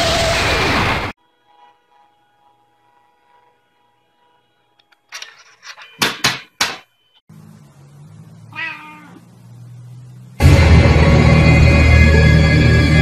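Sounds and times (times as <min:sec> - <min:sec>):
low steady hum: 0:07.3 - 0:12.6
cat meowing: 0:08.5 - 0:09.3.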